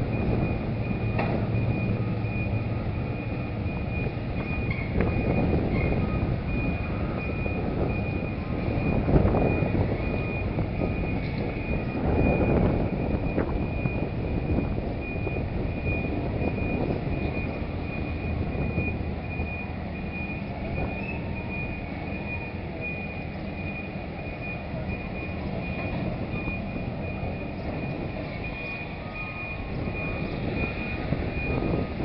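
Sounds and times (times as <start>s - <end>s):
ferry engines rumbling: 0.0s - 32.0s
high-pitched beeping tone: 0.1s - 32.0s.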